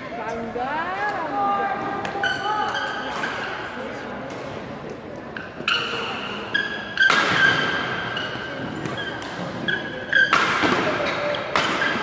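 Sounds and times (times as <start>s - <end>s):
rackets striking shuttlecock: 2.0s - 12.0s
shoe squeaks on court: 5.4s - 10.3s.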